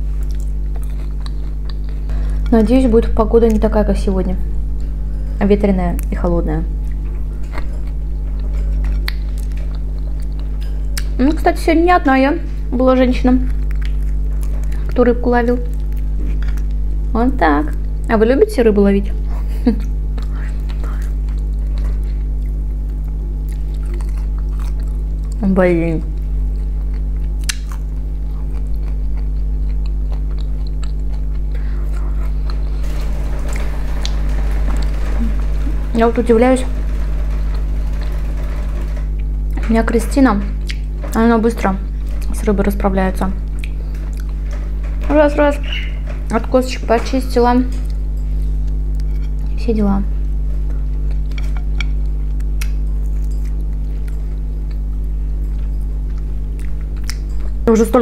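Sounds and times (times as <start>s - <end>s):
chewing crispy fried fish: 0.0s - 2.6s, 6.8s - 11.2s, 13.4s - 15.0s, 19.2s - 32.8s, 43.4s - 44.6s, 50.2s - 57.3s
steady low hum: 0.0s - 58.0s.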